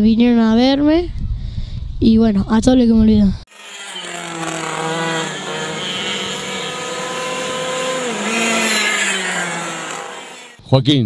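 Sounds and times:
kart engines at high revs: 3.5 - 10.6.

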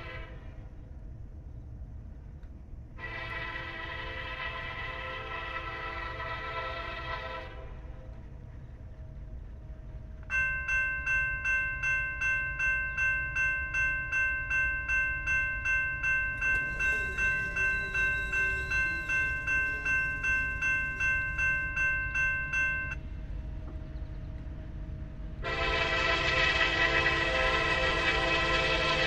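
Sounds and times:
diesel locomotive horn: 0.0 - 0.8, 3.0 - 8.3, 16.4 - 21.7, 24.6 - 29.0
railroad crossing bell ringing: 10.3 - 23.0, 25.4 - 29.0.

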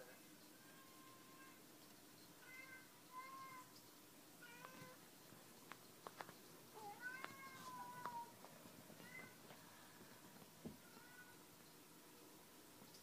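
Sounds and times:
cat meowing: 4.4 - 5.0, 6.8 - 8.4, 9.0 - 9.4, 10.8 - 11.4.

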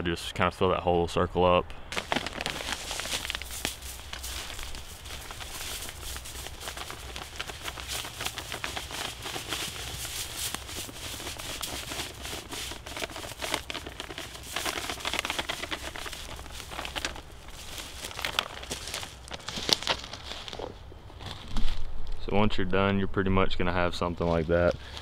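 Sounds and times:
powder pouring onto dirt: 1.9 - 20.0
plastic bag crinkling: 1.9 - 21.8.

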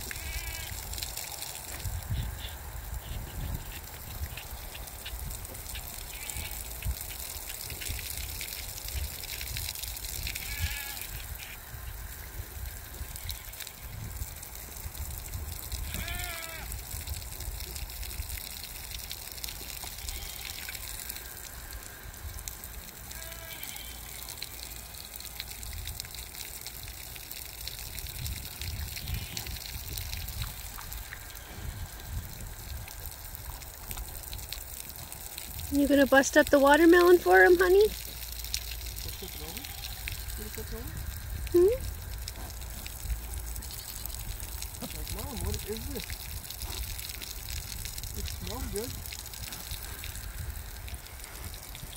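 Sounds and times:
pigs chewing and slurping: 0.0 - 51.9
short bleat-like animal calls: 0.1 - 0.8, 6.1 - 6.7, 10.3 - 11.2, 15.8 - 16.7, 19.9 - 20.7, 23.1 - 24.8, 39.0 - 40.1.

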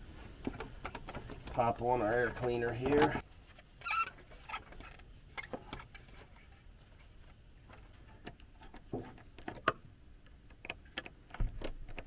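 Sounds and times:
faint clicks and knocks: 4.6 - 12.0.

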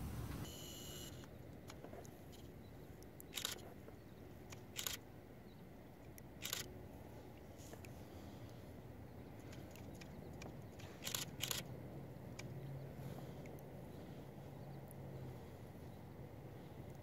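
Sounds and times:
faint steady hiss: 0.0 - 9.6.

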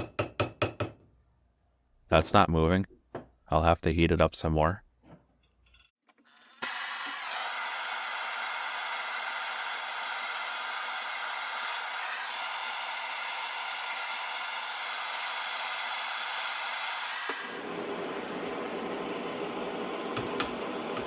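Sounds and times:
propane torch hissing: 15.6 - 21.0.

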